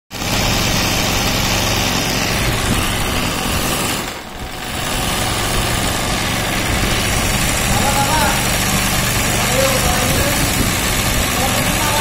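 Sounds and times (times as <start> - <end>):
embroidery sewing machine stitching: 0.1 - 12.0.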